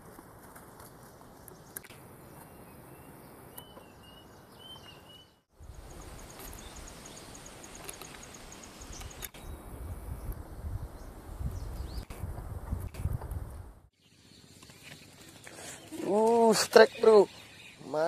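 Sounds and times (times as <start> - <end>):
steady background hiss: 0.0 - 11.8
insect rapid high ticking call: 5.6 - 9.6.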